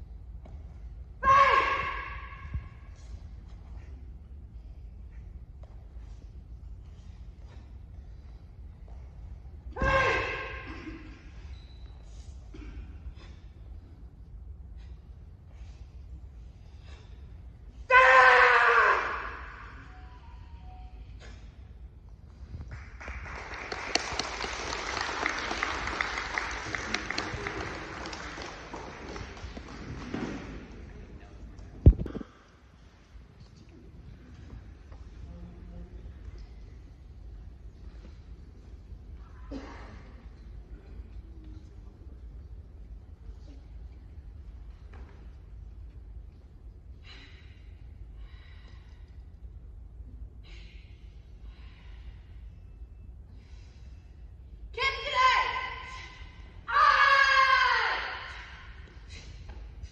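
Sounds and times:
low hall hum: 0.0s - 59.9s
audience applauding: 23.0s - 30.1s.

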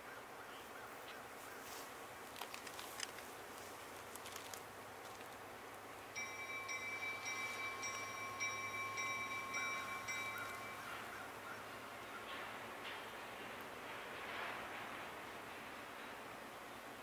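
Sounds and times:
faint railroad bell ringing: 6.1s - 15.1s.

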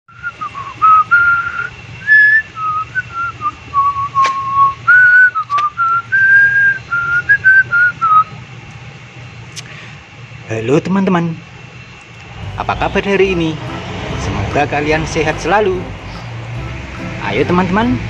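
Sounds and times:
person whistling a tune: 0.1s - 8.3s
sharp click: 4.2s - 4.4s, 5.4s - 5.7s.

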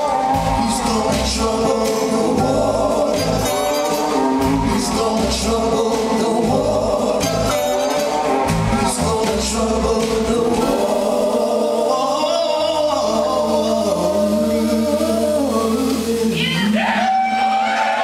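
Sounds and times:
horn section playing: 0.0s - 11.0s
drums: 0.0s - 18.0s
people singing: 0.0s - 18.0s.

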